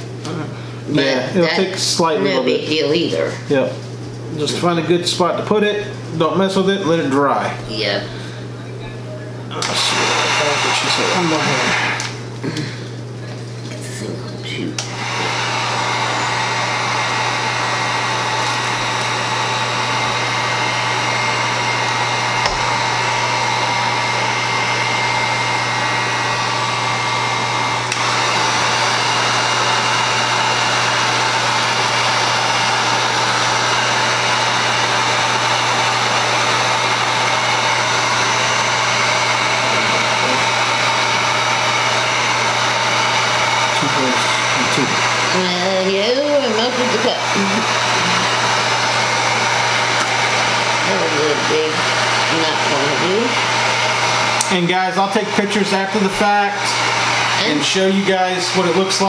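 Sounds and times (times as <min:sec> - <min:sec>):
heat gun fan blowing: 0:00.0 - 0:59.0.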